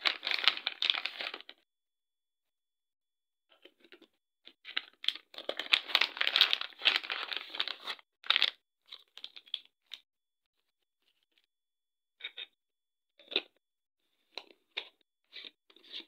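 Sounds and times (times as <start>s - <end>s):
plastic packaging crinkling: 0.0s - 1.5s, 4.8s - 9.7s.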